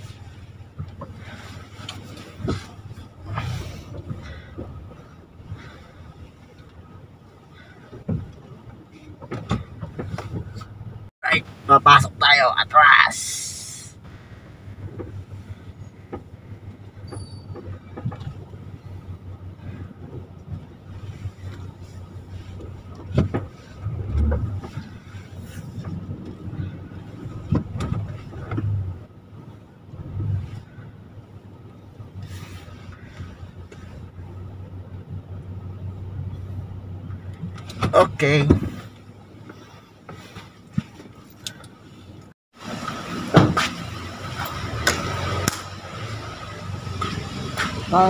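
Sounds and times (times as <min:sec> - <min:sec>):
engine and road rumble: 0:00.0 - 0:48.0
street ambience: 0:00.0 - 0:48.0
small clicks in van cabin: 0:38.9 - 0:41.8.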